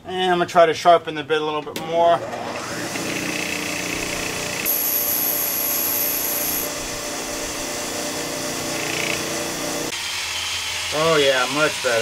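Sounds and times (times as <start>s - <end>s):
bench grinder grinding drill bit: 2.1s - 12.0s
high-pitched whine: 4.7s - 7.0s.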